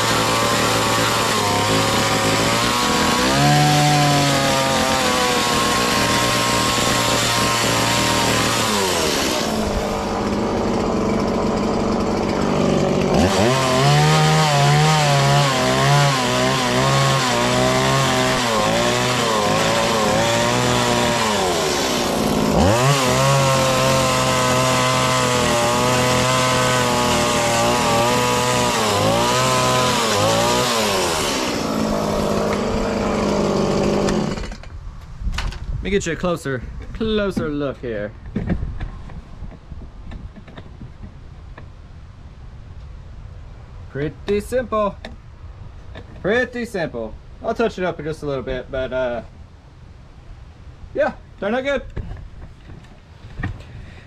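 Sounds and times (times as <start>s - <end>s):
chainsaw cutting wood: 0.0s - 34.8s.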